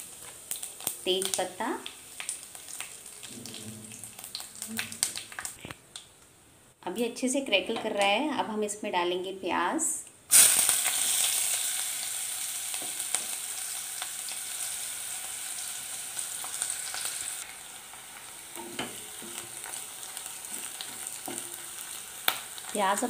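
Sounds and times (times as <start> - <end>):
onion sizzling in hot oil: 0.0 - 5.7, 10.3 - 23.0.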